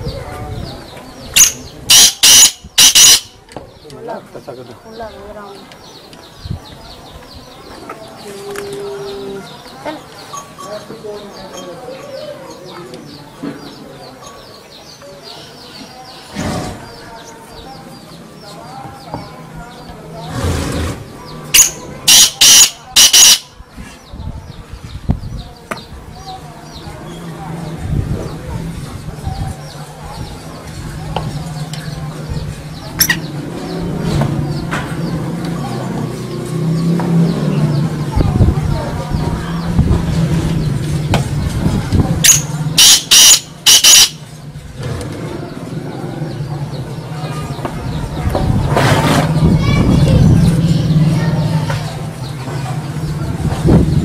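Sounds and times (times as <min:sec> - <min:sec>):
bird harsh grating calls: 0:01.2 - 0:03.4, 0:20.2 - 0:24.1, 0:42.2 - 0:45.0.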